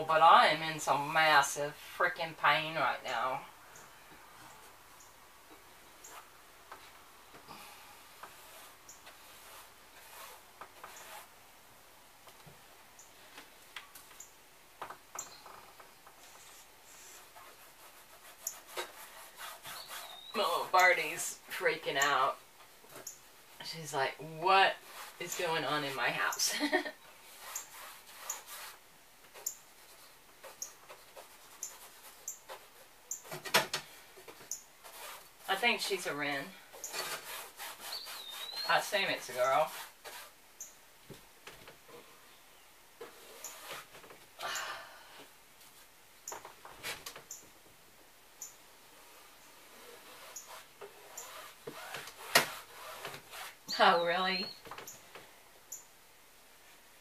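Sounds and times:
scraping and clicking at window frame: 14.8s - 20.2s, 49.7s - 53.7s
wren chipping: 18.4s - 22.3s, 30.4s - 33.4s, 34.4s - 40.0s
wren chip calls: 19.7s - 20.4s, 37.9s - 38.9s.

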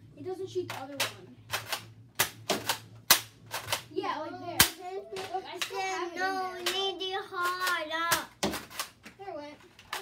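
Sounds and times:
toy blaster clacks: 6.6s - 9.0s.

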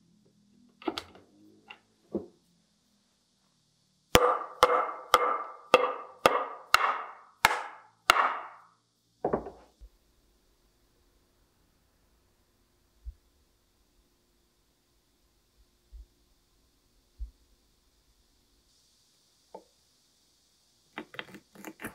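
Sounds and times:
mallet knocking wooden joint: 4.2s - 8.6s.

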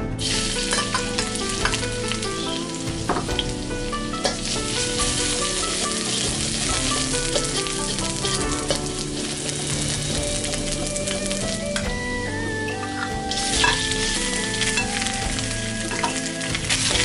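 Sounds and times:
background music: 0.0s - 17.0s
garlic sizzling in hot oil: 0.2s - 11.9s, 13.3s - 17.0s.

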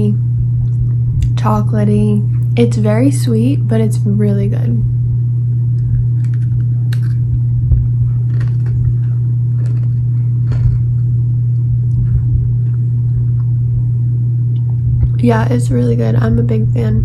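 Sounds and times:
loud steady low hum: 0.0s - 17.0s
person chewing a cookie: 5.7s - 13.6s.

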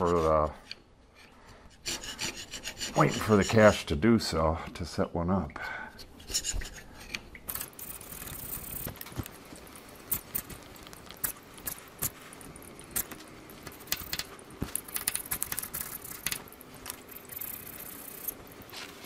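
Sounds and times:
chisel scraping metal: 0.0s - 3.8s, 6.0s - 8.0s.

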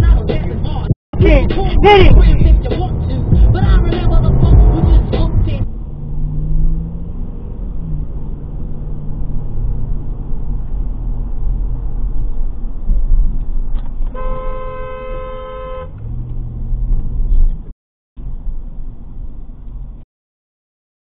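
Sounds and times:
car road and engine rumble: 0.0s - 20.0s
car horn: 14.1s - 16.1s.

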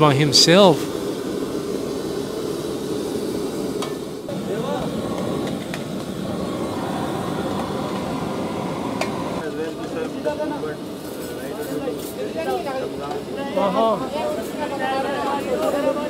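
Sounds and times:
gas burners rushing: 0.0s - 11.6s.

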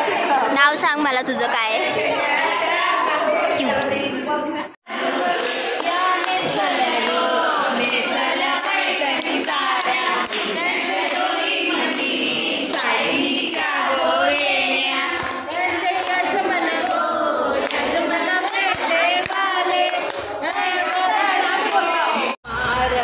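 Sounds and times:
women singing together: 0.0s - 23.0s
hand claps: 5.3s - 12.9s, 14.3s - 17.0s, 17.6s - 21.1s.

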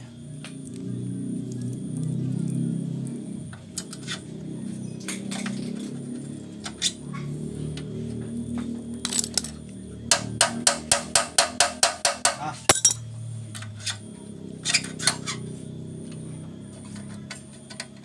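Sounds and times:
metallic taps and clinks: 12.7s - 13.0s
low hum: 12.7s - 13.6s.

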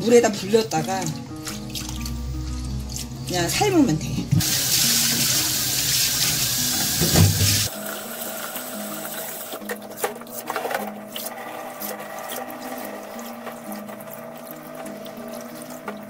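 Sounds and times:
water splashing and dripping: 0.3s - 3.4s, 4.4s - 10.1s, 11.1s - 16.0s
hands sloshing in water: 0.8s - 2.2s.

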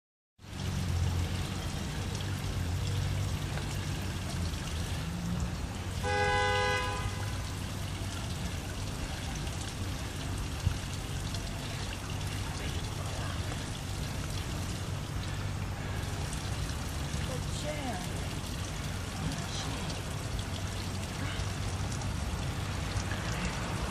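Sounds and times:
horn sounding: 6.0s - 7.6s.

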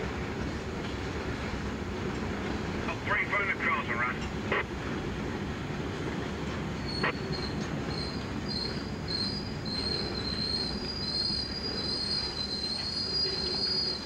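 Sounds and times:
train wheels rumbling on rail: 0.0s - 14.0s
high wavering wheel squeal: 6.8s - 14.0s.

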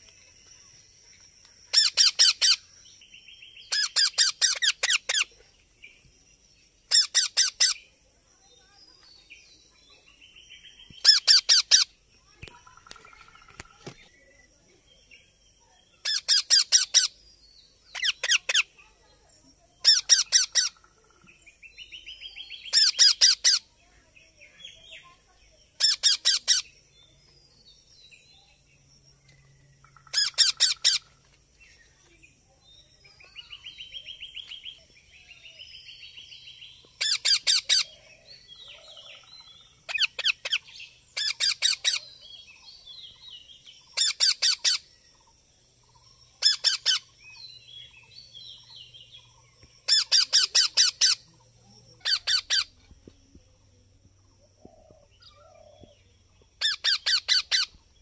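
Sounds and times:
soft rasping bird chatter: 0.0s - 58.0s
parakeets screeching: 1.7s - 2.6s, 3.7s - 5.3s, 6.9s - 7.8s, 11.0s - 11.9s, 16.0s - 17.1s, 19.8s - 20.8s, 22.7s - 23.6s, 25.8s - 26.6s, 30.1s - 31.0s, 37.0s - 37.9s, 41.2s - 42.0s, 44.0s - 44.8s, 46.4s - 47.1s, 49.9s - 51.2s, 52.0s - 52.7s, 56.6s - 57.8s.

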